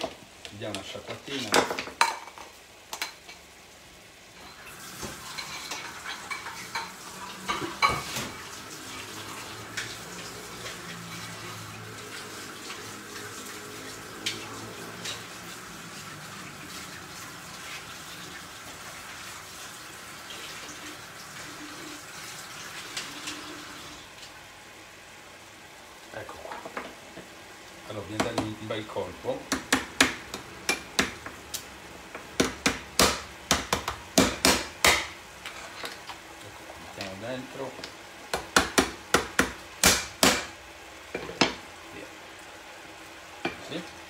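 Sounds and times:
kitchen tap running: 4.4s - 24.4s.

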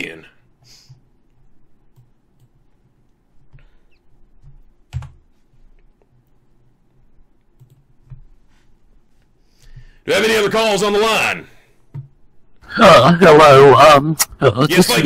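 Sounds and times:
faint clicks and taps: 0.8s - 8.5s.

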